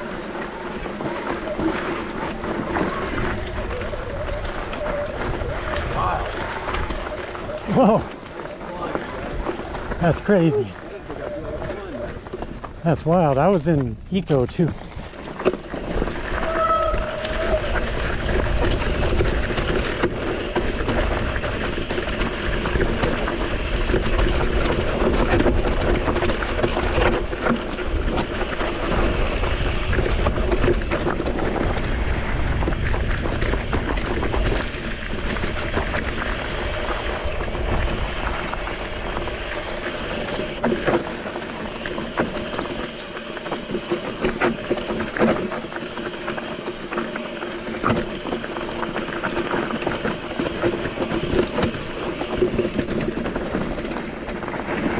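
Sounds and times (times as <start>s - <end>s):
bike rolling over gravel: 0.0s - 54.9s
clicks and rattles from bike: 0.0s - 54.9s
wind rushing over microphone: 15.8s - 40.6s.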